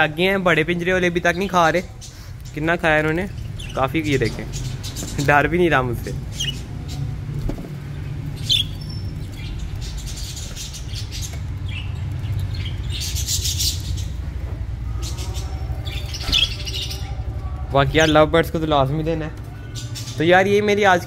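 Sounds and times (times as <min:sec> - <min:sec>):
budgerigars chirping: 0:01.3 - 0:07.1, 0:07.9 - 0:14.2, 0:15.1 - 0:17.2.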